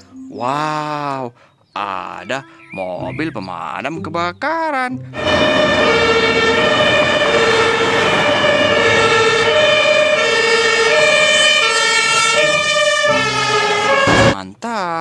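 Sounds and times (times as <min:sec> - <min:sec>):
city traffic: 0:05.2 - 0:14.4
two-tone fire engine siren: 0:05.2 - 0:14.4.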